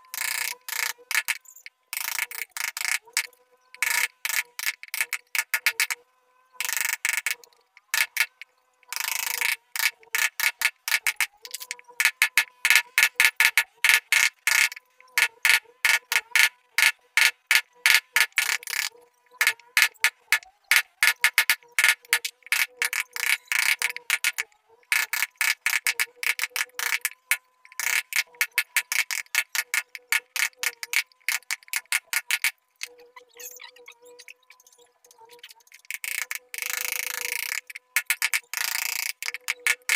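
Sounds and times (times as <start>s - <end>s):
mallet striking carving chisel: 17.2s - 32.5s, 37.5s - 39.9s.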